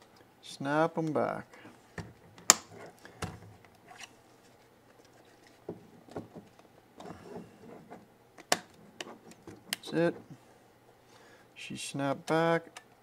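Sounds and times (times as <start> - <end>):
plastic clips snapping into place: 2.4 - 3.4, 8.4 - 9.8.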